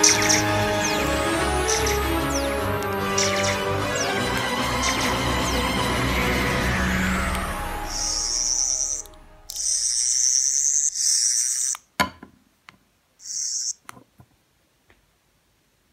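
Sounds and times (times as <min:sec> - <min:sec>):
music: 0:00.0 - 0:09.6
high-pitched electronic toy buzz: 0:07.0 - 0:11.8.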